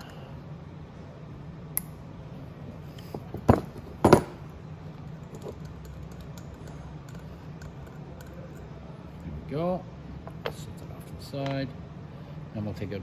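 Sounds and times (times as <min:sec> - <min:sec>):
wrench clinking on metal parts: 0:05.2 - 0:08.7.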